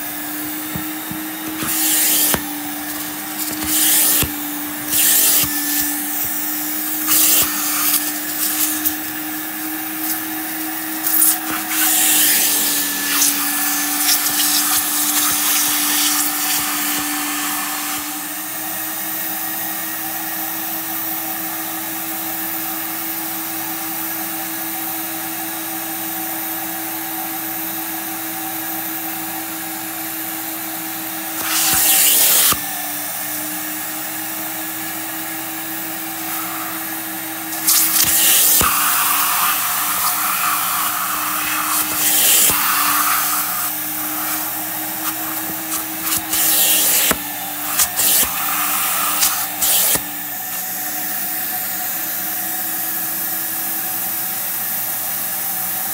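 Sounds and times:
vacuum motor whining: 0:00.0 - 0:26.0, 0:27.8 - 0:53.8
hissing spray and suction bursts: 0:00.3 - 0:18.2, 0:31.3 - 0:32.7, 0:36.0 - 0:50.7.

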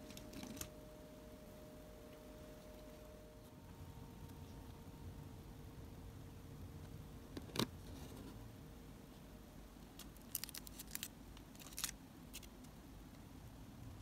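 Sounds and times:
plastic bags crinkling: 0:10.0 - 0:12.5.

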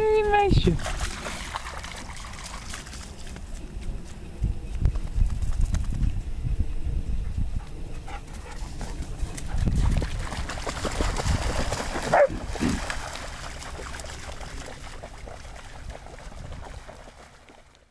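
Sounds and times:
dogs splashing through water: 0:00.0 - 0:03.9, 0:08.2 - 0:17.9
wind rumble on microphone: 0:00.0 - 0:17.7
dog yelping: 0:12.1 - 0:12.3.

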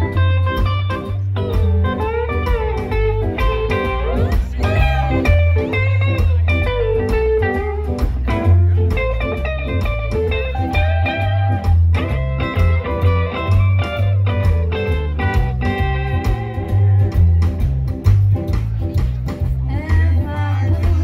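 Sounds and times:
bass line: 0:00.0 - 0:21.0
drums: 0:00.0 - 0:21.0
electric guitars: 0:00.0 - 0:21.0.

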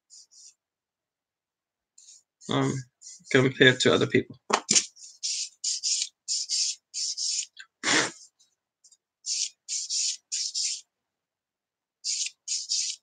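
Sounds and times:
sanding stick rasping on plastic: 0:04.7 - 0:07.5, 0:09.3 - 0:10.8, 0:12.1 - 0:13.0.

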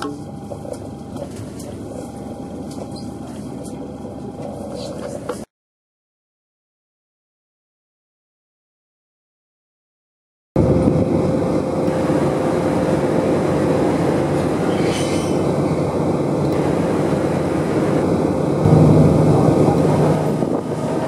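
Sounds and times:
ferry engine drone: 0:00.0 - 0:05.4, 0:10.6 - 0:21.0.

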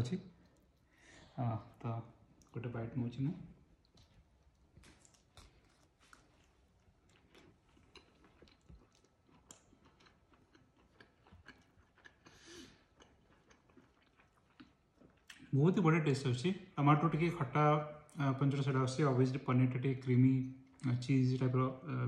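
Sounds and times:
faint chewing: 0:00.3 - 0:02.6, 0:03.5 - 0:15.5.

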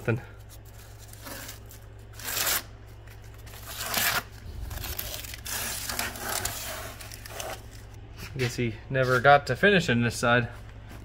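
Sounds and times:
tape tearing off: 0:03.4 - 0:08.0.

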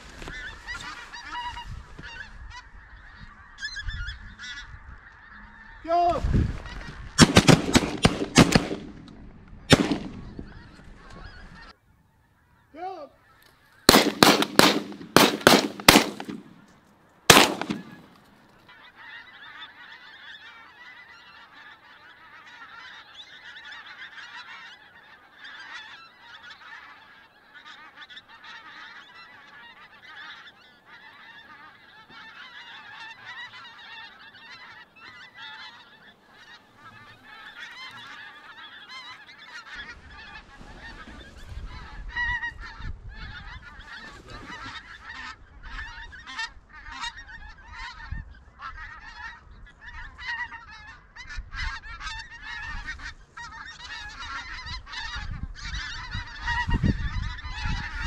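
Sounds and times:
flock of geese honking: 0:00.0 - 0:58.0
shotgun shots: 0:07.2 - 0:09.1, 0:09.7 - 0:10.2, 0:13.9 - 0:16.6, 0:17.3 - 0:18.1.

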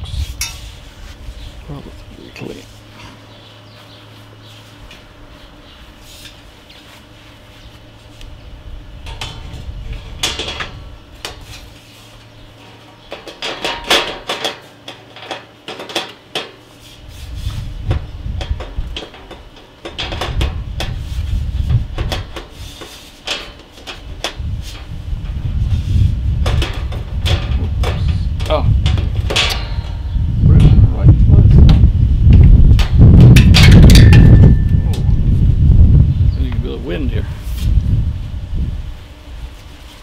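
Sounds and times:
low rumble: 0:24.9 - 0:39.0.

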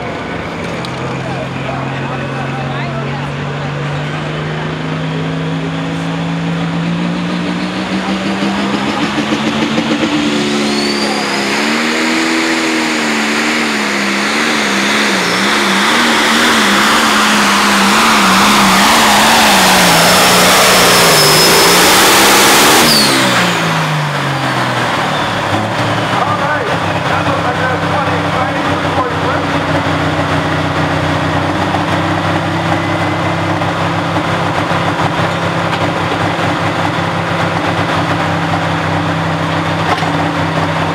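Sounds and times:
tractor diesel engine under load: 0:00.0 - 0:40.9
faint high whistle: 0:10.6 - 0:11.5.

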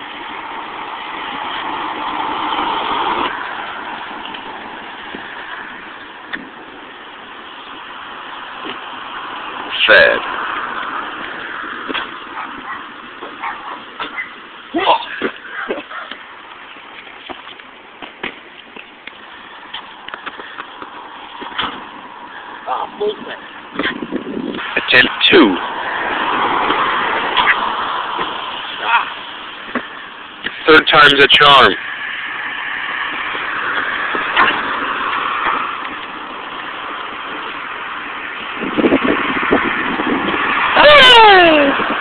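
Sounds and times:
passing car: 0:00.0 - 0:42.0
footsteps on concrete: 0:15.1 - 0:21.9.

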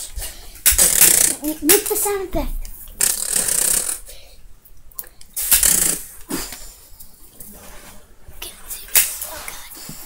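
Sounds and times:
person making mouth gunfire sounds: 0:05.4 - 0:06.1.

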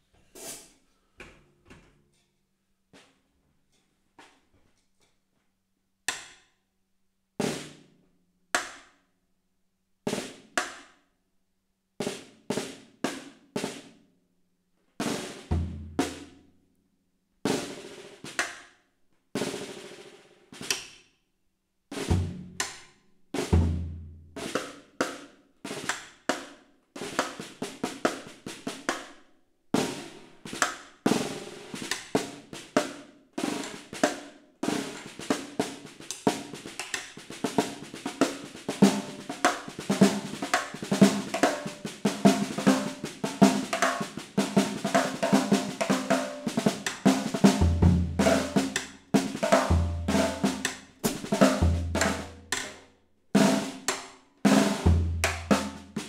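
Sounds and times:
drum kit solo: 0:15.0 - 0:16.3, 0:21.9 - 0:22.7, 0:23.4 - 0:24.7, 0:29.8 - 0:52.8, 0:53.4 - 0:56.0
bass drum strokes: 0:49.7 - 0:52.3.

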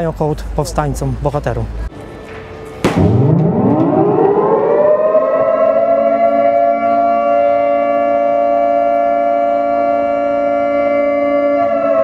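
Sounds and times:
siren wailing: 0:02.6 - 0:12.0.

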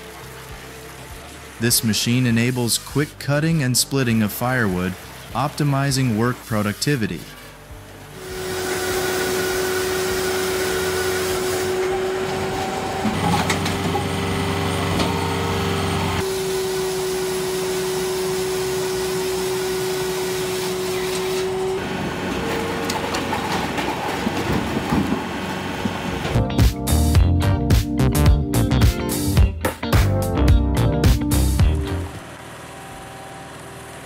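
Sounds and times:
machine humming: 0:07.6 - 0:26.4, 0:31.6 - 0:34.0.

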